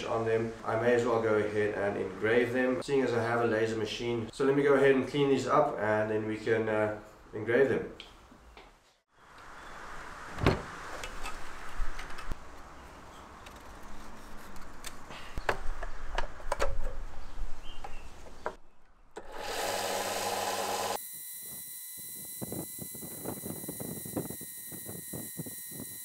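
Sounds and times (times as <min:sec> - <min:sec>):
sander motor hum and whine: 0:19.2 - 0:26.0.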